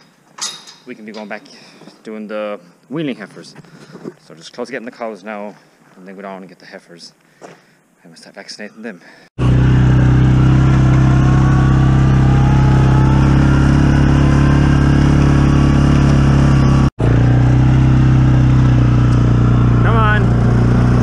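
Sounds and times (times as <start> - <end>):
quad bike engine running: 9.4 - 21.0.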